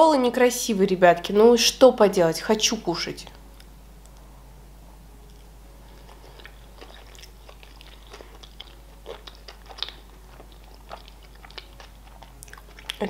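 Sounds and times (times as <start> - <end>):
chewing food: 5.3 - 13.0.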